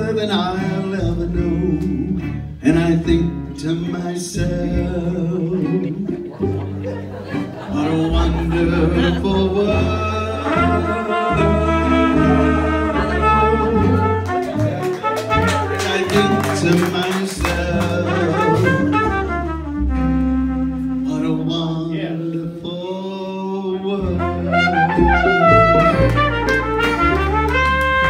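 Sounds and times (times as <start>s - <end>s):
strummed guitar: 0.0s - 23.0s, 23.8s - 28.0s
plucked upright bass: 0.0s - 28.0s
mandolin: 0.4s - 21.4s, 24.0s - 28.0s
trumpet melody: 9.8s - 21.7s, 24.0s - 28.0s.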